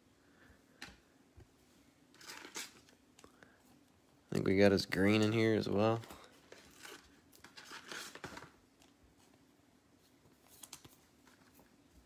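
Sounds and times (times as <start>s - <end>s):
trading cards rustling: 2.1s - 3.3s, 5.1s - 9.0s, 10.3s - 11.8s.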